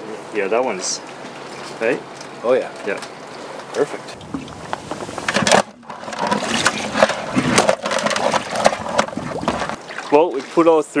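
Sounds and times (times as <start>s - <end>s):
crabs clicking in plastic bucket: 4.2s - 10.2s.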